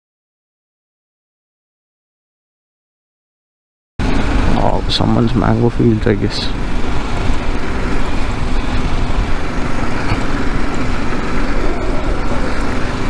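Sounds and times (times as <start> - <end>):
motorcycle engine running: 4.0 - 13.0
wind rushing: 4.0 - 13.0.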